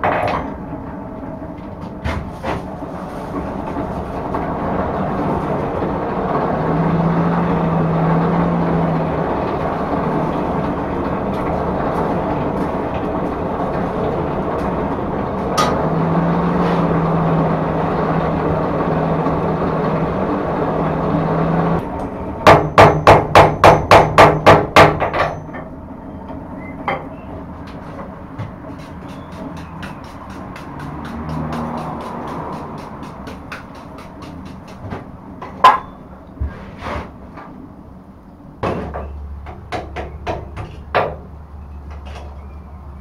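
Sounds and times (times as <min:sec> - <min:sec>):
low hum: 0:00.0 - 0:22.8
forge roaring: 0:02.6 - 0:22.5.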